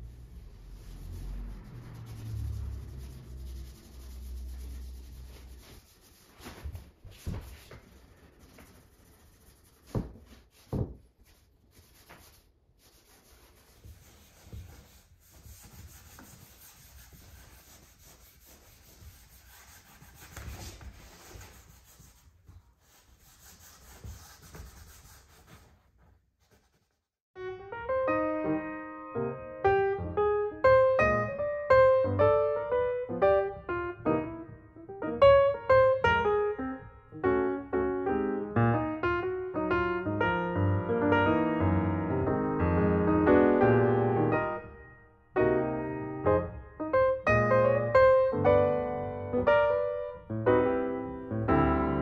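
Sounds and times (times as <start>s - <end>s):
cloth rubbing on wood: 0.8s - 27.1s.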